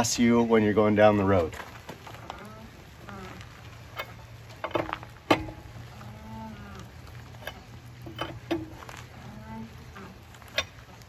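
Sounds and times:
lug wrench clinking on nuts: 3.8s - 6.2s, 7.1s - 9.2s, 10.0s - 11.0s.

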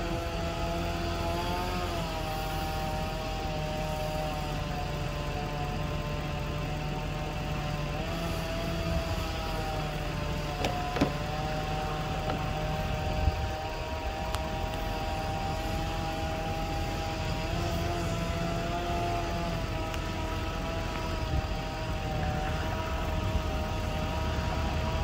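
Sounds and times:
distant engine running: 0.0s - 25.0s
sharp knocks: 10.5s - 11.4s.

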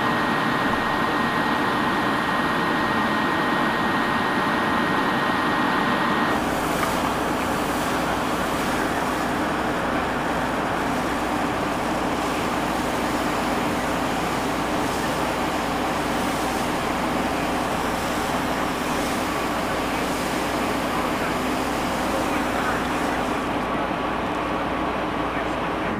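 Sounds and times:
fire hose jetting water onto pavement: 5.8s - 25.9s
vehicle engine running: 6.2s - 25.9s.

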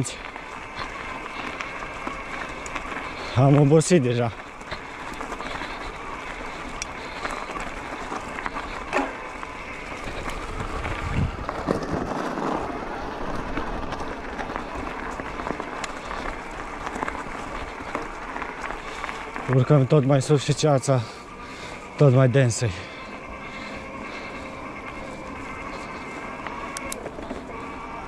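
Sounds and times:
bike clicks and knocks: 0.0s - 20.6s, 23.1s - 28.0s
tyres rolling on track: 0.0s - 28.0s
wind on microphone: 10.3s - 12.1s.

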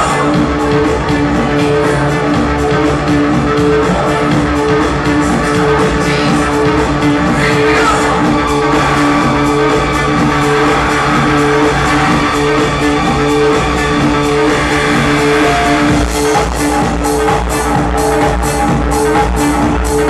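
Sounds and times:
heavy bass kick: 0.0s - 20.0s
techno music: 0.0s - 20.0s.

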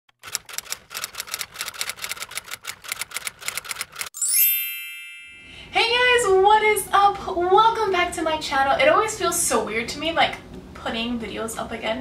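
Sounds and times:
typewriter key clacks: 0.2s - 4.1s.

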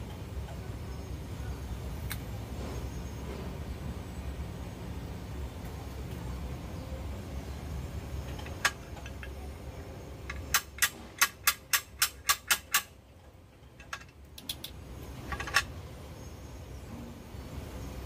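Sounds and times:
steel lever tool clicking: 10.3s - 12.9s.

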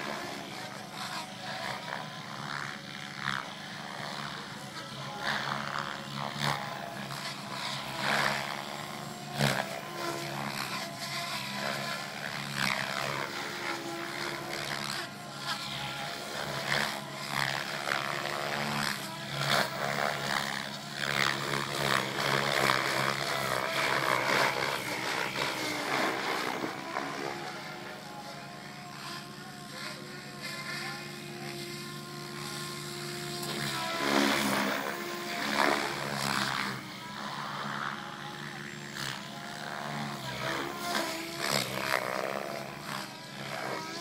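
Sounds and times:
helicopter rotor blades whooshing: 0.0s - 44.0s
helicopter drive whining: 19.2s - 41.2s.

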